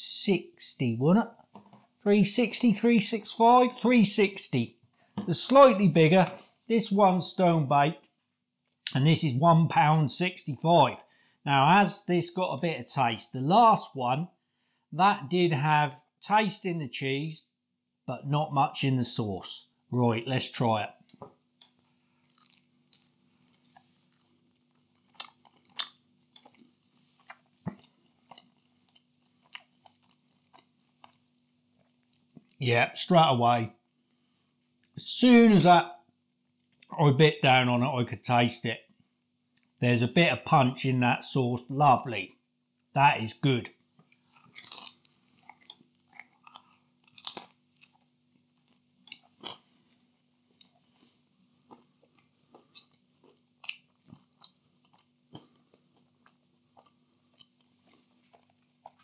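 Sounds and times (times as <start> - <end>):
faint steady hum: 0.0 - 59.0
soft chewing: 20.9 - 32.6, 33.8 - 35.0, 36.5 - 37.0, 39.0 - 39.8, 43.7 - 59.0
crunching pizza crust: 21.1 - 32.7, 43.9 - 59.0.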